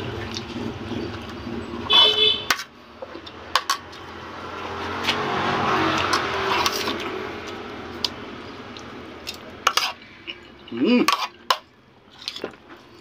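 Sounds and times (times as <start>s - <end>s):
vehicle passing by: 0.0s - 1.9s, 2.7s - 9.6s.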